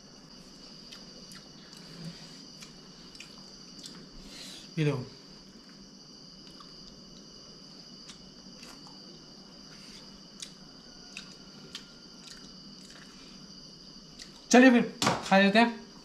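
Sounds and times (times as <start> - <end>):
faint high-pitched whine: 0.0 - 16.0
person chewing food: 0.7 - 4.2, 6.4 - 14.5.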